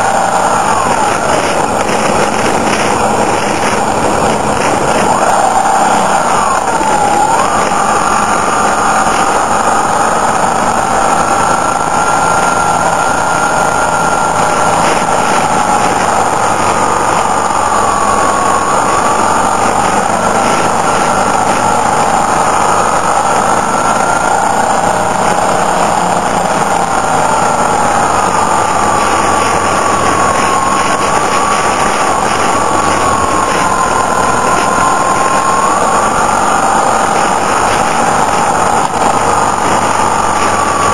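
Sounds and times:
motorcycle engine running: 0.0 - 12.1, 12.9 - 40.9
wind rushing: 0.0 - 40.9.

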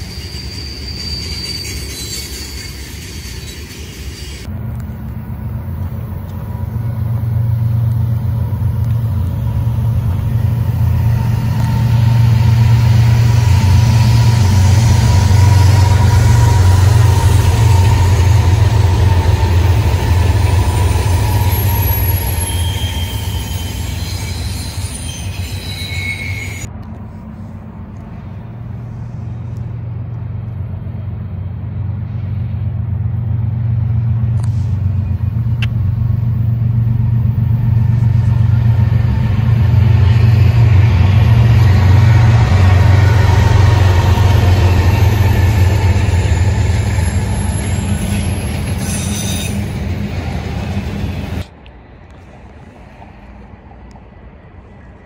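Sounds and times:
train wheel squeals: 0.0 - 4.5, 8.7 - 26.7, 36.5 - 51.4
freight train rumbling past: 0.0 - 55.0.

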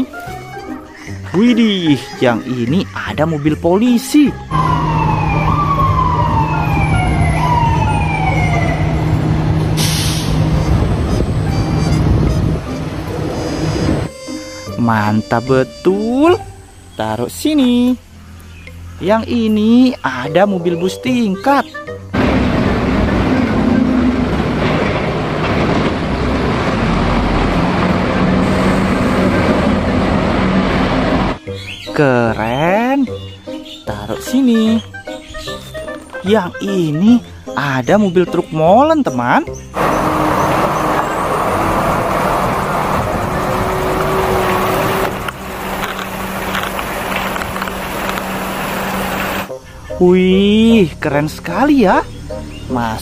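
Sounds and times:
road noise: 0.0 - 53.0
siren wailing: 4.4 - 12.0, 39.8 - 46.8
bus diesel engine droning: 4.4 - 19.0, 22.2 - 31.4, 39.8 - 49.8
short hiss: 9.8 - 10.5.

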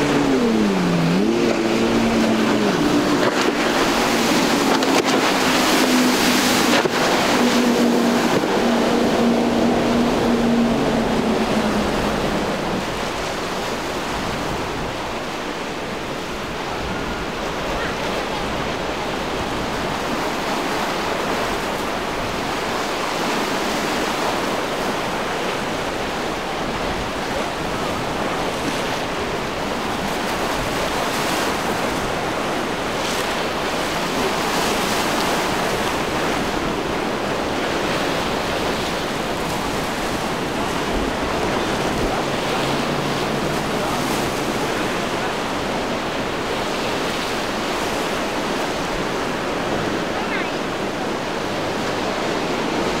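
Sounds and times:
surf and breaking waves: 0.0 - 53.0
wind gusting on microphone: 0.0 - 53.0.

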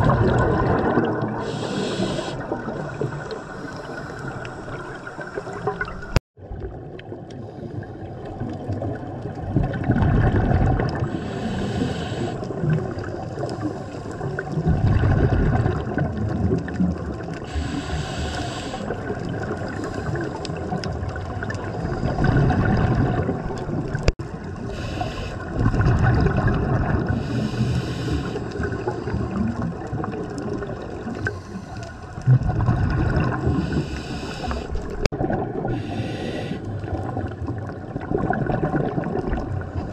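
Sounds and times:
bubbling exhale underwater: 0.0 - 39.9
hissing regulator inhale: 1.4 - 5.8, 11.1 - 12.5, 17.5 - 19.1, 19.7 - 20.6, 24.7 - 25.5, 27.2 - 29.3, 31.1 - 32.2, 33.5 - 35.0, 35.7 - 36.9.

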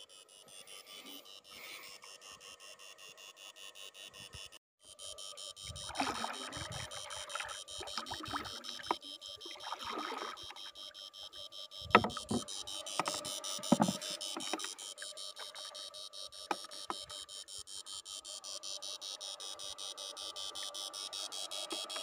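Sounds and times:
pulsing electronic whine: 0.0 - 22.0
water sloshing around boat: 5.6 - 17.3
sharp knocks: 11.9 - 12.4.

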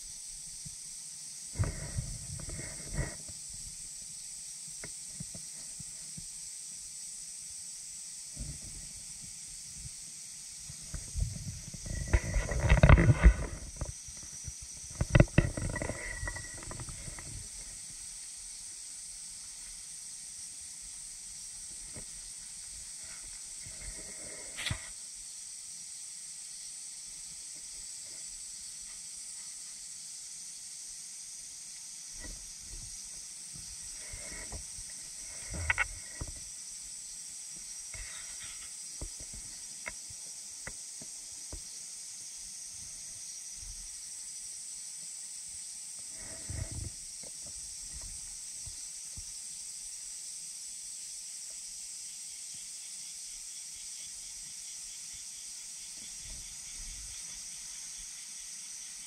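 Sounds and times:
high-pitched insect drone: 0.0 - 59.0.

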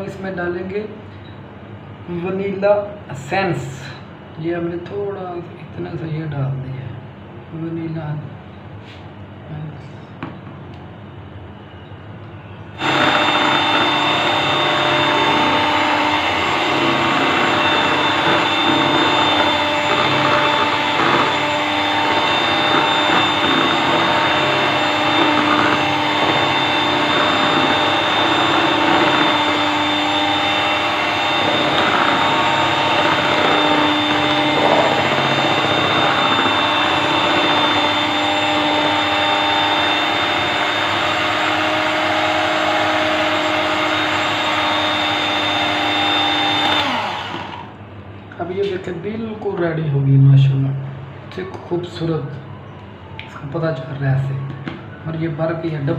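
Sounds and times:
electric mixer motor whine: 12.7 - 47.8.

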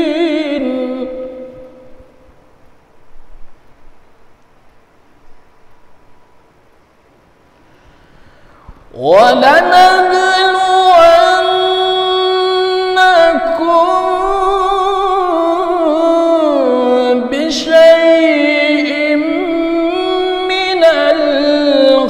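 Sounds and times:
man reciting melodically: 0.0 - 2.0, 8.9 - 22.0.

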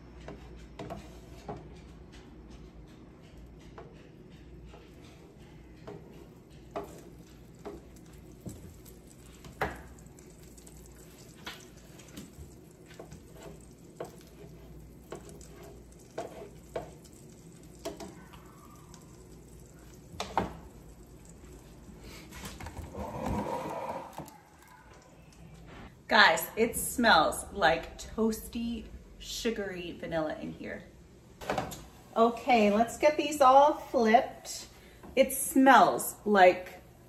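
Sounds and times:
french toast sizzling in butter: 6.5 - 22.3.

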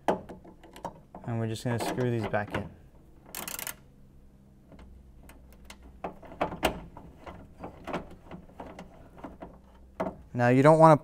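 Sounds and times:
ratchet clicking: 3.3 - 3.8.

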